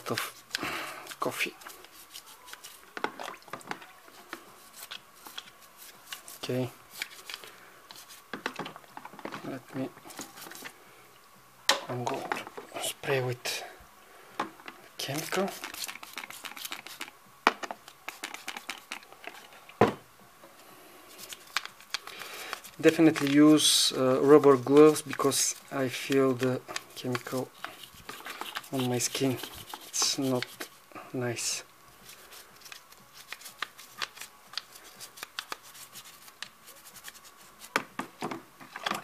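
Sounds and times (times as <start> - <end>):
toothbrush scrubbing plastic: 0.1 - 3.4, 4.6 - 8.3, 15.0 - 17.2, 17.9 - 19.5, 21.1 - 37.8.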